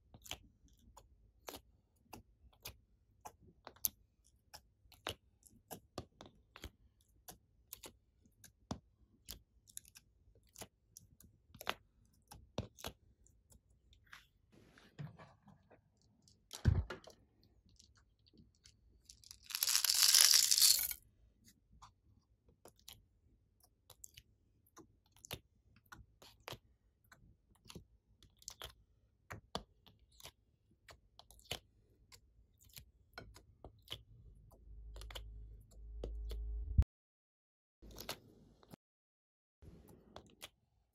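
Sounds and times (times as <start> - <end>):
loud plastic rustling: 19.2 - 21.0.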